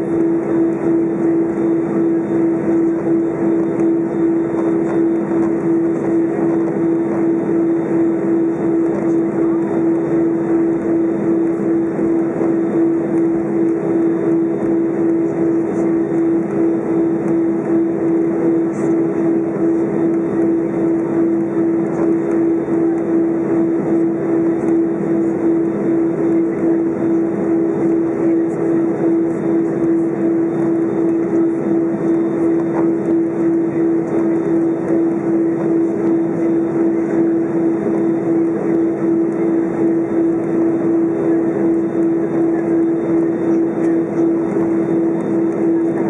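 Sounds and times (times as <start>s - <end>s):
aircraft cabin engine hum: 0.0s - 46.0s.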